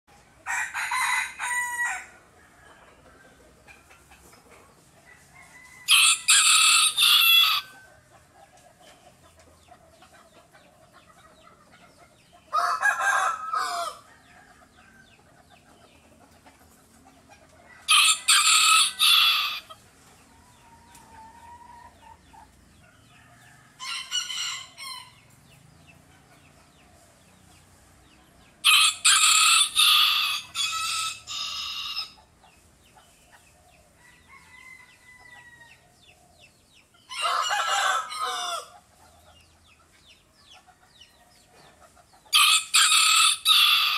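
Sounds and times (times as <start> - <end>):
rooster crowing: 0.4 - 2.9, 5.1 - 7.8, 12.5 - 15.0, 17.8 - 19.7, 28.6 - 32.2, 34.0 - 35.8, 37.1 - 38.8, 42.3 - 43.9.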